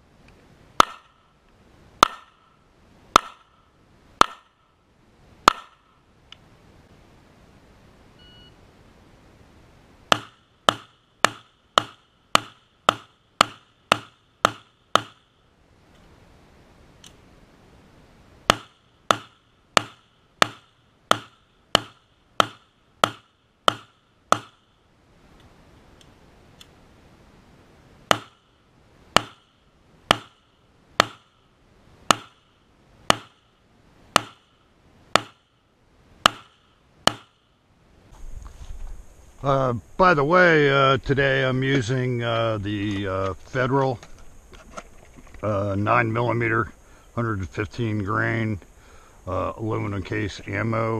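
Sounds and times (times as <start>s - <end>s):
pistol shots: 28.1s - 28.4s.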